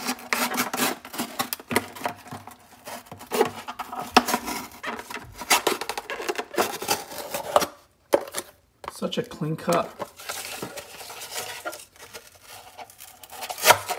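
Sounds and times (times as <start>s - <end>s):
knife slicing cardboard: 10.8s - 13.9s.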